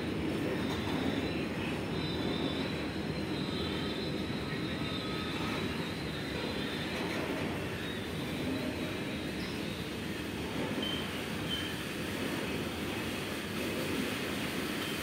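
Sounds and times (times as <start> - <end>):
freight wagons rumbling on rails: 0.0 - 15.0
high wheel squeal: 2.0 - 11.9.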